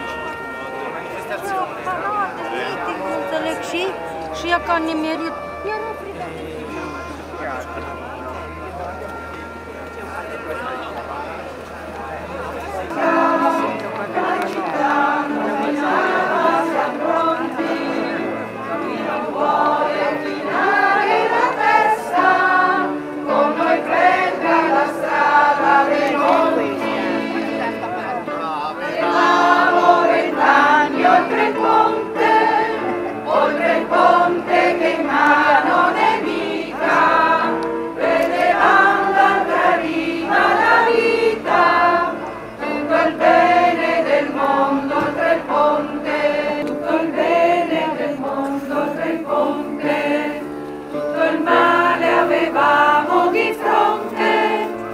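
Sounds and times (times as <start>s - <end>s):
crowd singing in unison: 11.5s - 54.9s.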